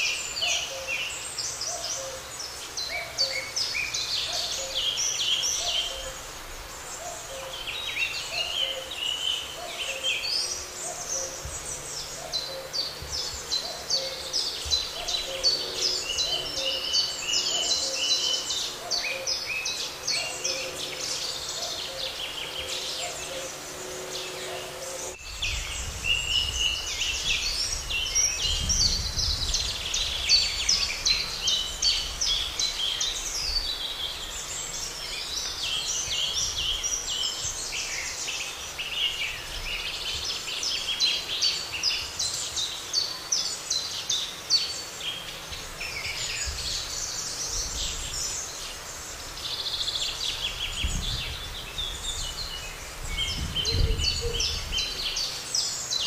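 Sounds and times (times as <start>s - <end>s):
songbirds chirping and trilling: 0.0s - 56.0s.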